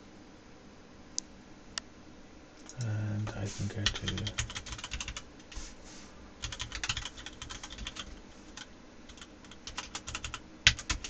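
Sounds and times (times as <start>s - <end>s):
keyboard typing clicks: 6.4s - 8.2s, 9.1s - 11.0s.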